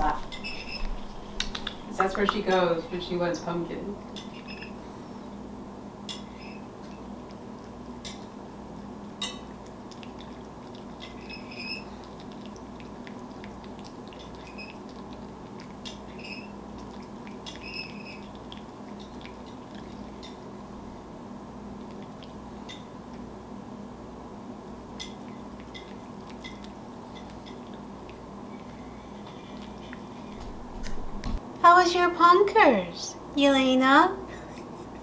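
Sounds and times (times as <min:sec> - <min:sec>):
cat licking metal spoon: 0:09.5 - 0:20.4, 0:25.0 - 0:30.3.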